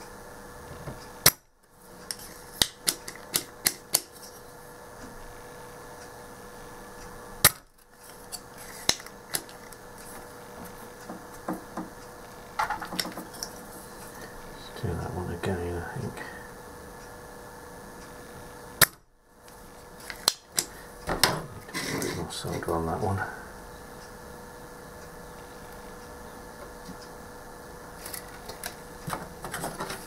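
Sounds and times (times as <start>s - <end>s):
desoldering pump snapping: 2.0s - 4.4s, 7.4s - 9.8s, 18.8s - 22.7s, 28.0s - 30.0s.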